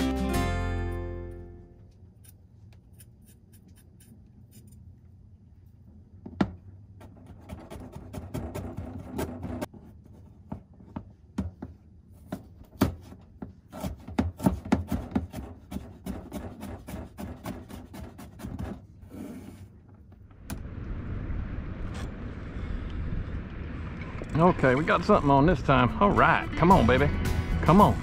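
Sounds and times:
knife scraping: 0:02.2 - 0:04.9.

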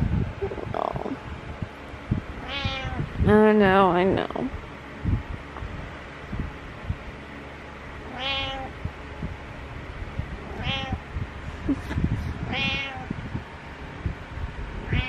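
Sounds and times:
cat meowing: 0:02.4 - 0:03.1, 0:08.1 - 0:08.8, 0:10.5 - 0:11.0, 0:12.5 - 0:13.1.

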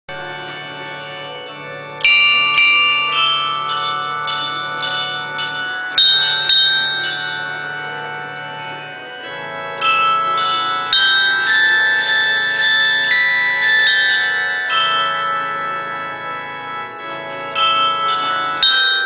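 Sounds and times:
glockenspiel playing slow tune: 0:00.2 - 0:19.0.

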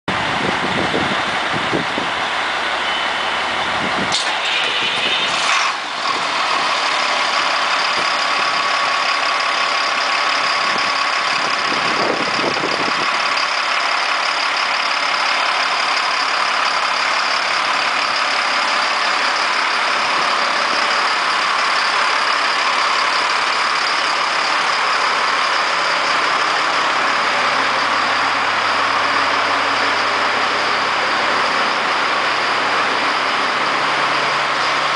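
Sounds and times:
diesel engine idling: 0:00.1 - 0:34.9
high whine: 0:16.0 - 0:34.9.

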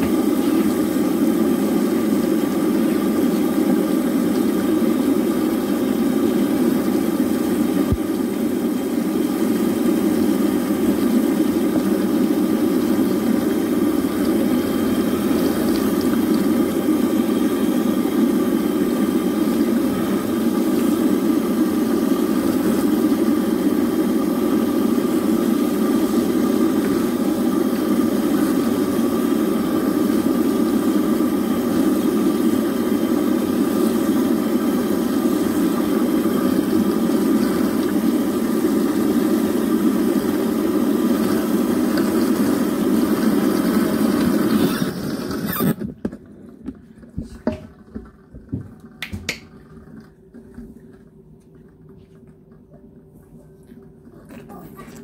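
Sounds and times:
faucet running into steel basin: 0:00.0 - 0:45.8
water dripping: 0:10.4 - 0:17.3.

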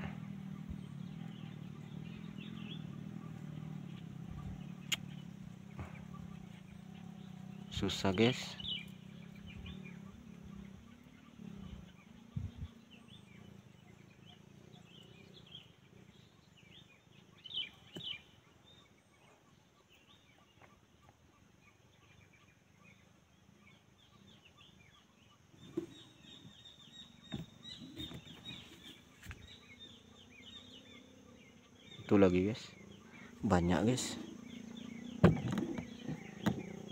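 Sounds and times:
birds chirping: 0:00.0 - 0:36.9
soft knocks: 0:35.2 - 0:36.7.

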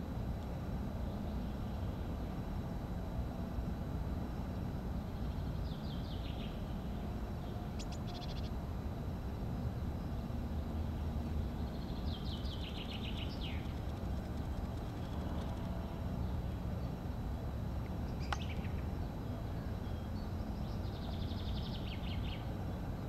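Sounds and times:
low background rumble: 0:00.0 - 0:23.0
songbird chirping: 0:10.9 - 0:16.4, 0:18.0 - 0:22.5.

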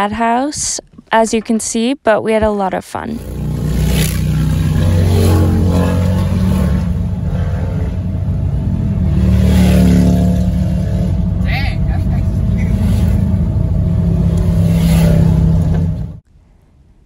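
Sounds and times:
vehicle engines at highway speed: 0:03.1 - 0:16.2.

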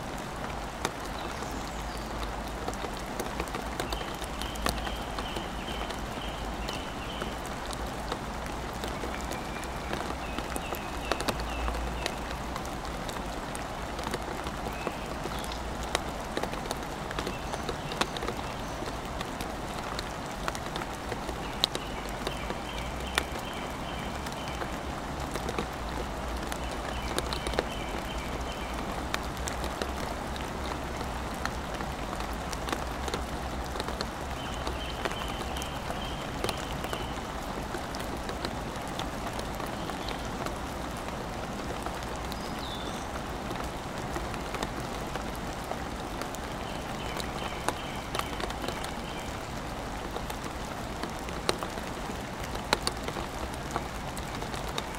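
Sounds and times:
raindrops ticking close by: 0:00.0 - 0:54.9
steady rain falling: 0:00.0 - 0:54.9.

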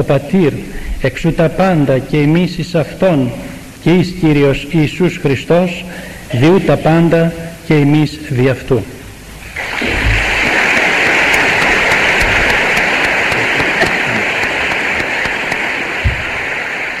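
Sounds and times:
person speaking: 0:00.0 - 0:09.0, 0:10.8 - 0:15.6
audience applauding: 0:09.6 - 0:17.0.

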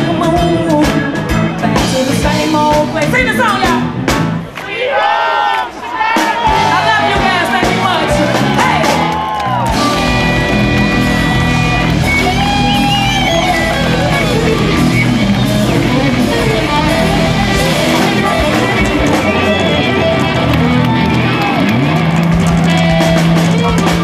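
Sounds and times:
person singing: 0:00.0 - 0:03.8, 0:13.9 - 0:20.8
electric guitar: 0:00.0 - 0:04.5, 0:06.5 - 0:24.0
bass: 0:00.0 - 0:04.6, 0:05.7 - 0:24.0
drums: 0:00.0 - 0:24.0
keyboard: 0:06.2 - 0:24.0.

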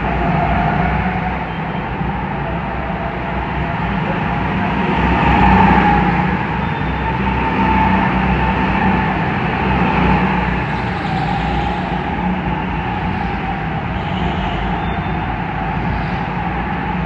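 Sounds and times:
go-kart motors humming: 0:00.0 - 0:17.0.

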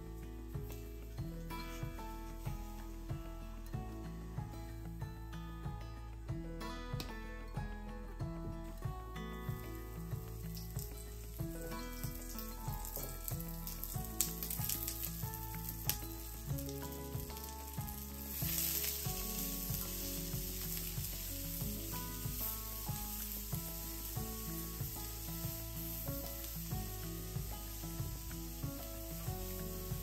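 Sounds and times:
vegetables sizzling in frying pan: 0:09.5 - 0:30.0.

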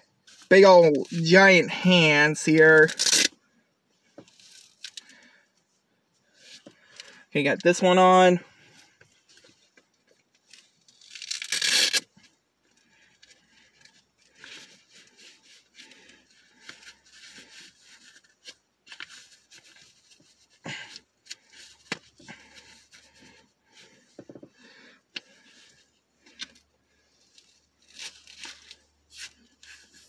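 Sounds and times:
gloves rustling and rubbing: 0:00.0 - 0:03.3, 0:03.9 - 0:30.0
hook-and-loop strap ripping open: 0:02.8 - 0:03.4, 0:04.3 - 0:05.3, 0:10.4 - 0:24.5, 0:25.2 - 0:30.0.

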